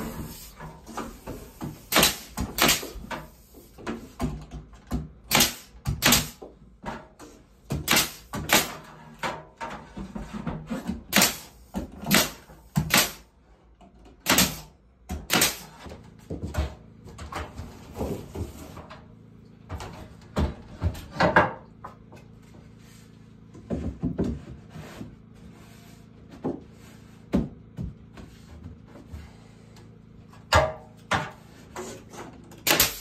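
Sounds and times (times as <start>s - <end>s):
pneumatic nailer firing into wood: 1.4s - 4.2s, 5.2s - 6.5s, 7.7s - 8.9s, 10.9s - 13.3s, 14.2s - 15.8s, 32.5s - 33.0s.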